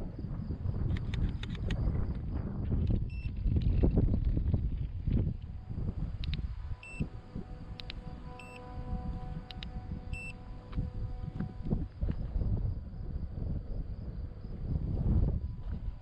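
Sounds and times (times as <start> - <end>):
scooter display beeping: 3.1 - 3.3, 6.2 - 8.7, 9.4 - 11.8.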